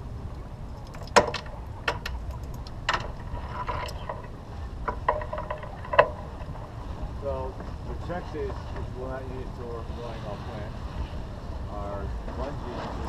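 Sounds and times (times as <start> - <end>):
wind rumble on microphone: 0.0 - 13.0
deck hardware clicking and clanking: 0.7 - 7.8.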